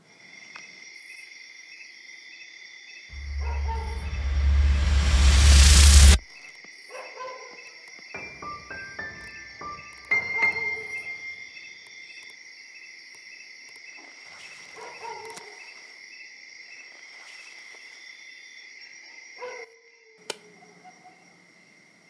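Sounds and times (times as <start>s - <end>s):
crickets chirring: 6.2s - 22.0s.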